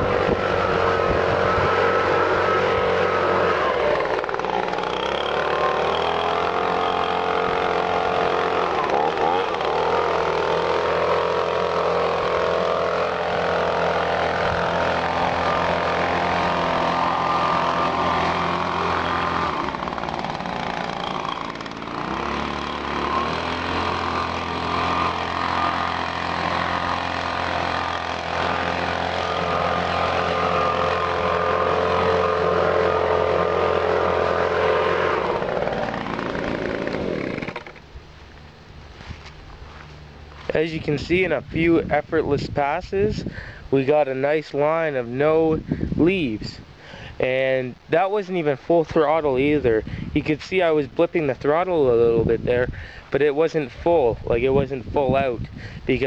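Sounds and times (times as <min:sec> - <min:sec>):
leaf blower engine running: 0:00.0 - 0:43.7.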